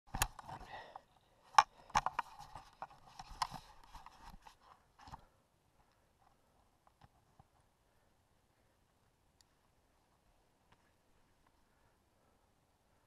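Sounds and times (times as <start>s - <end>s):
knocks and clicks on camera housing: 1.5s - 3.6s.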